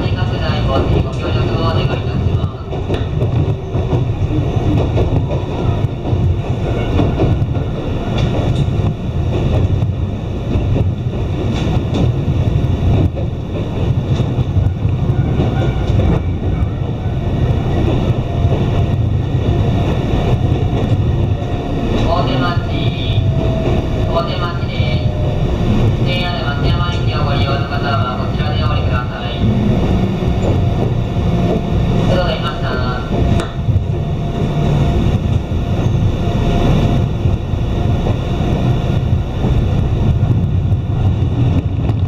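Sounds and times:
train wheels rumbling on rails: 0.0 - 42.0
train wheel clicks: 0.7 - 16.5, 32.4 - 33.7.

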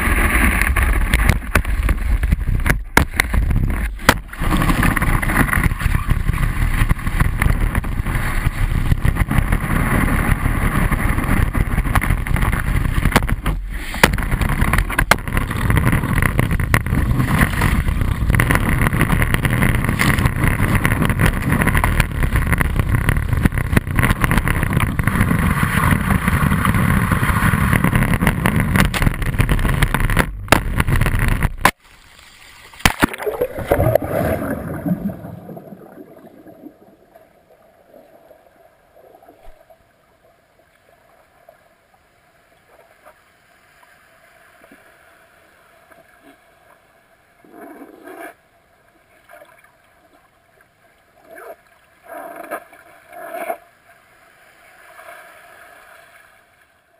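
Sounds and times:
wind on camera housing: 0.0 - 31.8
water rushing and spraying: 0.0 - 38.2.

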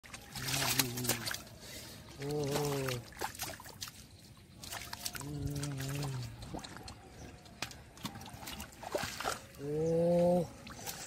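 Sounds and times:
water splashing: 0.0 - 11.0.

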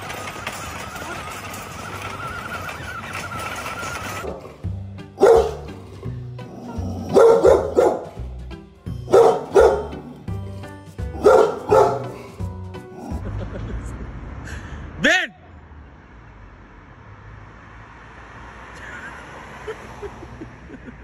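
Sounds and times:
background music with bass: 4.3 - 14.0
dog barking deep woofs: 5.2 - 5.9, 6.5 - 8.2, 9.1 - 10.1, 11.2 - 13.2.

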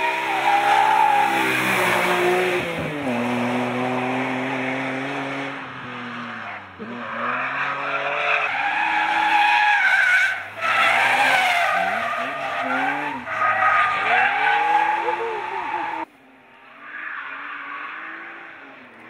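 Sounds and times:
car engine revving hard: 1.2 - 9.2.

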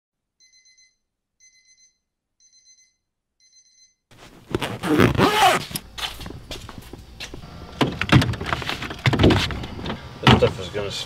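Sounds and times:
electronic alarm beeping: 0.4 - 4.0
fabric bag rustling: 4.1 - 7.0.

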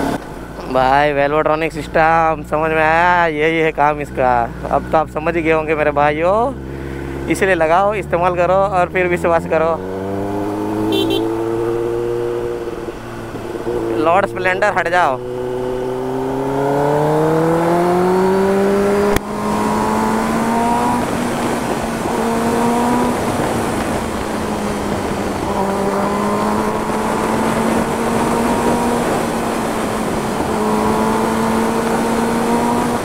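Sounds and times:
motorcycle engine: 0.0 - 33.0
wind rushing: 15.2 - 33.0.

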